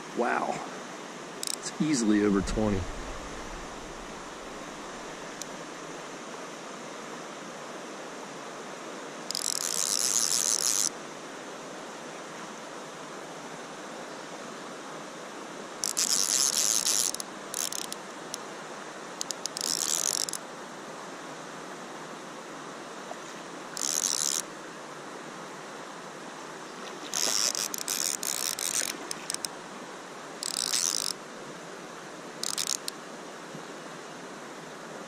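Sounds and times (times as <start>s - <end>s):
steady hiss: 0.0s - 9.3s
fishing reel drag buzzing: 1.4s - 1.7s, 2.6s - 5.5s, 9.3s - 10.9s, 15.8s - 18.0s, 19.2s - 20.4s, 23.8s - 24.4s, 27.1s - 29.5s, 30.4s - 31.2s, 32.4s - 32.9s.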